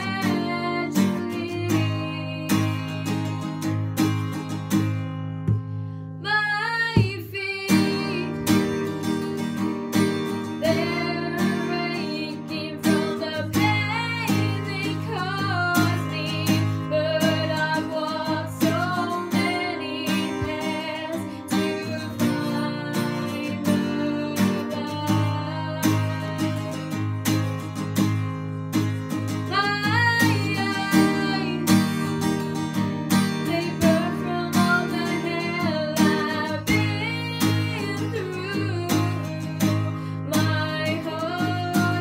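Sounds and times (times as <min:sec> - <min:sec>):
person singing: 0:00.0 - 0:03.4, 0:10.6 - 0:26.9, 0:29.5 - 0:31.9, 0:33.5 - 0:42.0
acoustic guitar strumming: 0:00.0 - 0:06.2, 0:06.8 - 0:42.0.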